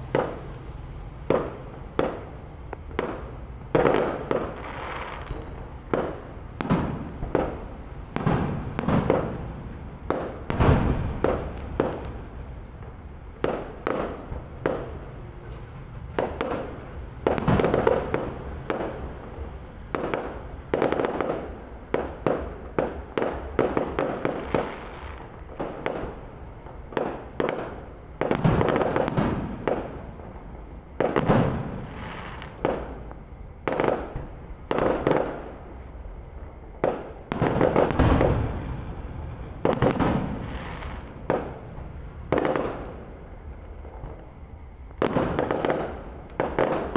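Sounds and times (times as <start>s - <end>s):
firework shells bursting: 36.8s - 43.0s.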